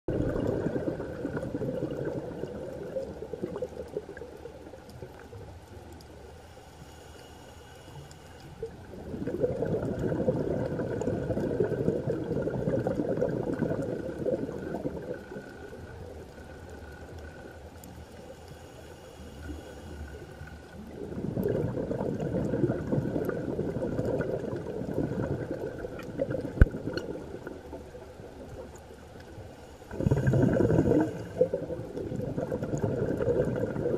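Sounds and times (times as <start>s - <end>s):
bubbling exhalation underwater: 0.1s - 4.4s, 8.9s - 15.8s, 20.8s - 28.6s, 29.9s - 33.9s
regulator inhalation: 18.2s - 20.6s.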